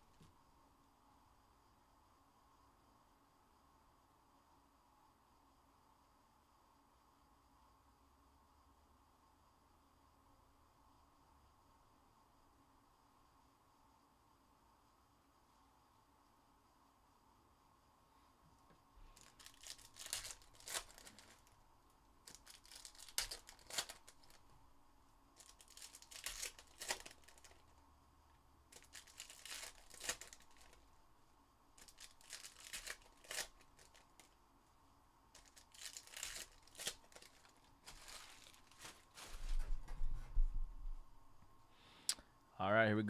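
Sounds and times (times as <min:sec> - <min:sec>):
foil packs tearing and crinkling: 0:19.1 - 0:21.6, 0:22.2 - 0:24.5, 0:25.4 - 0:27.7, 0:28.7 - 0:30.8, 0:31.8 - 0:34.3, 0:35.4 - 0:39.7.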